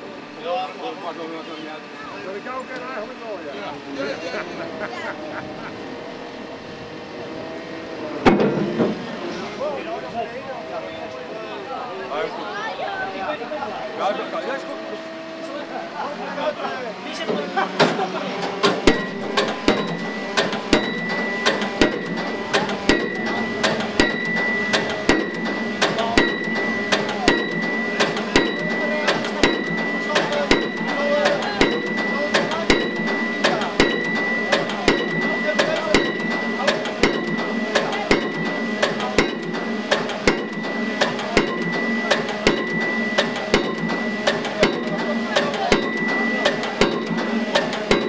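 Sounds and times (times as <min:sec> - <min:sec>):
pile-driving hammer blows ringing: 0:08.2 - 0:11.0, 0:17.2 - 0:48.0
steady high tone: 0:18.8 - 0:48.0.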